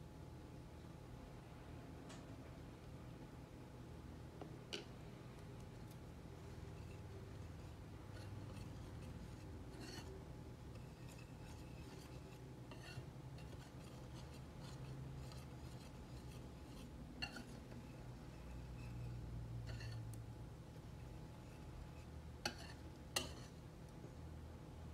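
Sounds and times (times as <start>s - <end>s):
whisk scraping in bowl: 6.6s - 20.2s, 20.8s - 23.6s.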